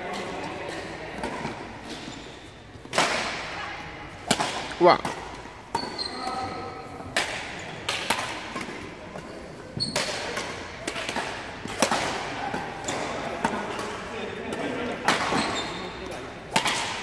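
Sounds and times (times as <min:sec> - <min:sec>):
rackets striking shuttlecock: 0:04.2 - 0:06.0, 0:07.0 - 0:09.3, 0:09.9 - 0:17.0.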